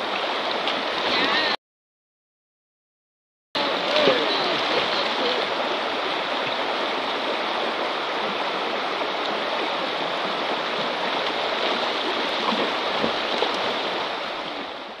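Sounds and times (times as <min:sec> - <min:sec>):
river water rushing over stones: 0:00.0 - 0:01.6, 0:03.6 - 0:15.0
dogs splashing in water: 0:03.6 - 0:05.7.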